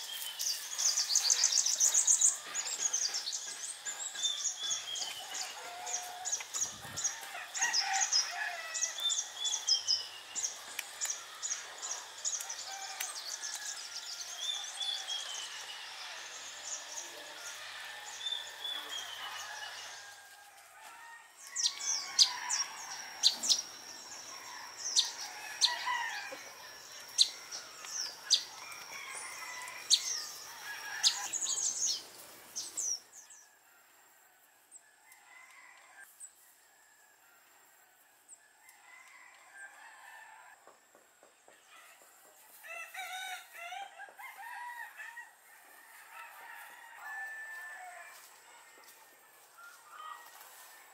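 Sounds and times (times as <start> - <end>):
birds chirping and calling: 0.0 - 20.2, 21.4 - 33.5.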